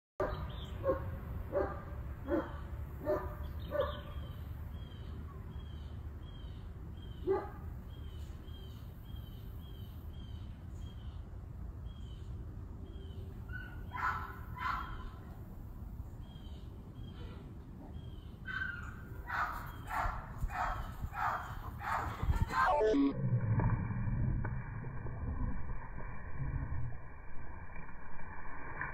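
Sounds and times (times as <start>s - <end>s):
dog barking: 0.2s - 4.2s, 7.2s - 7.6s, 13.6s - 15.0s, 18.5s - 22.8s
steady low rumble: 20.0s - 28.9s.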